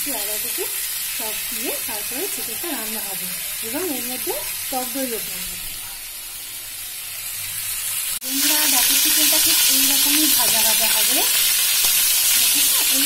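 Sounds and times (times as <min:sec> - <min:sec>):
chicken sizzling in oil: 0:00.0 - 0:13.0.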